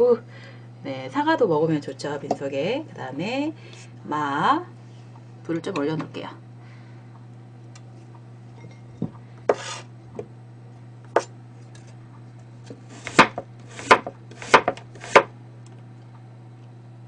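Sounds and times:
knife scraping cutting board: 9.5 - 9.9, 12.8 - 15.3
knife slicing on cutting board: 9.5 - 9.9.

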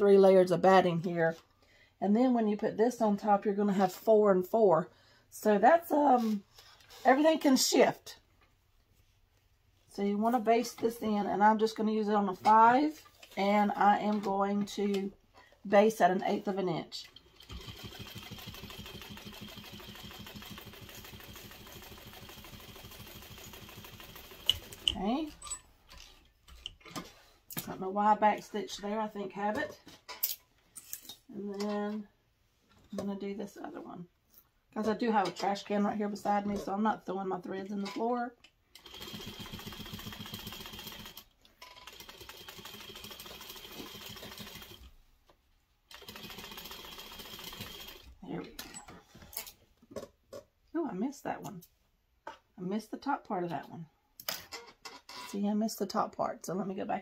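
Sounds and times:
sewing machine stitching: 17.2 - 25.0, 38.8 - 44.9, 45.9 - 48.1.

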